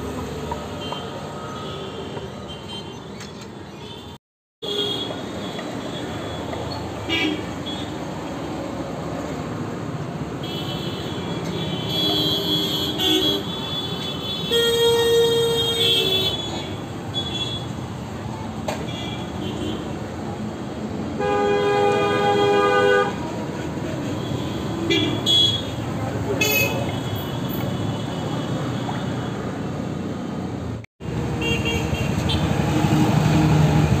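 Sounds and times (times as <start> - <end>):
street traffic: 0.0 - 34.0
vehicle horns honking: 10.4 - 17.7, 21.2 - 23.2, 24.2 - 25.8, 26.4 - 29.0.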